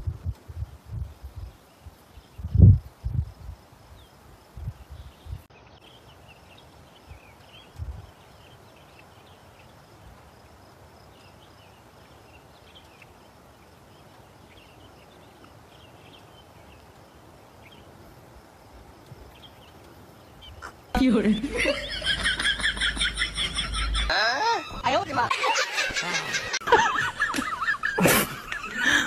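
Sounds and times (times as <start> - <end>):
steady low hiss: 0.0 - 29.0.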